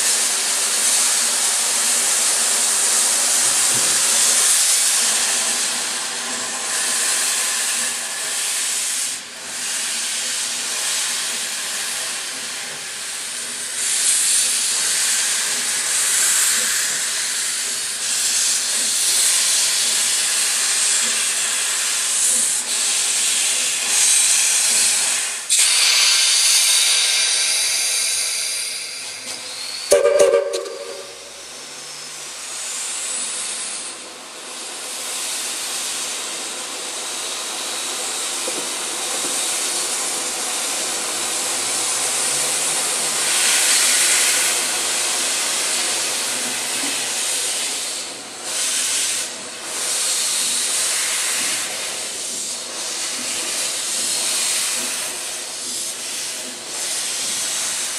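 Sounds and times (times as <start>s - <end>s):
steam hissing from locomotive: 0.0s - 57.9s
steam whistle toot: 29.9s - 31.5s.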